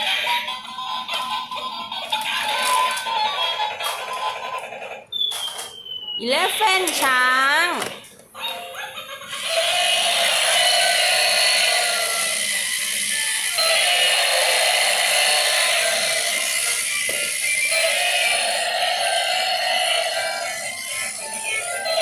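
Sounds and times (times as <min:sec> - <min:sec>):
plastic gears whirring and clicking: 0:02.1 - 0:04.8, 0:09.3 - 0:22.0
tinny electronic tune: 0:09.5 - 0:22.0.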